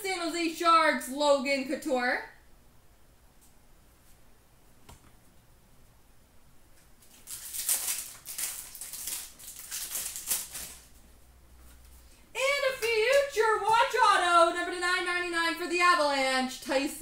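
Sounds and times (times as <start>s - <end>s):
foil wrapper crinkling and tearing: 7.0s - 11.0s.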